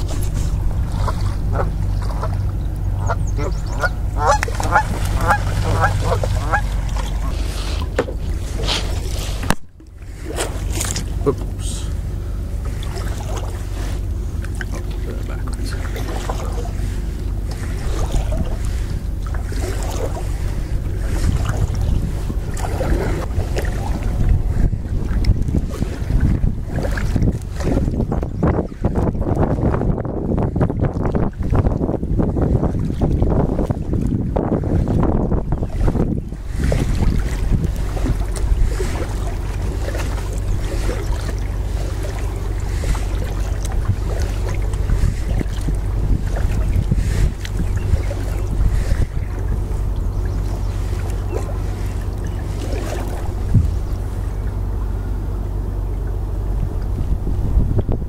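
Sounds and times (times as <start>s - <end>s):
light water splashes: 0.0s - 57.2s
wind buffeting microphone: 0.0s - 58.0s.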